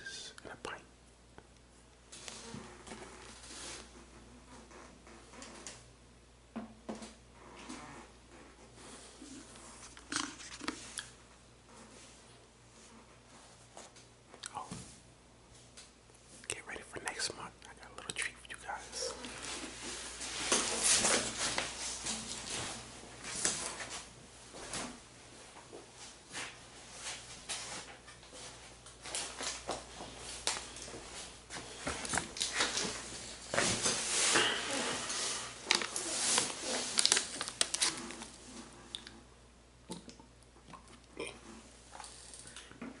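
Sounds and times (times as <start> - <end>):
person gulping a drink: 9.9 - 11.1, 39.9 - 41.6
plastic crinkling: 33.7 - 38.4.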